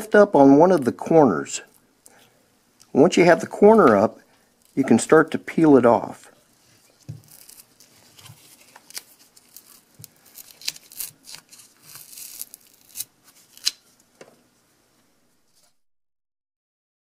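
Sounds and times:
adhesive tearing and crackling: 0:07.0 - 0:13.8.

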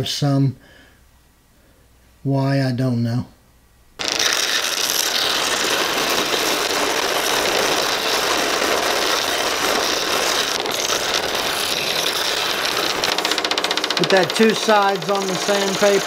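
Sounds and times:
scroll saw running: 0:04.0 - 0:16.0.

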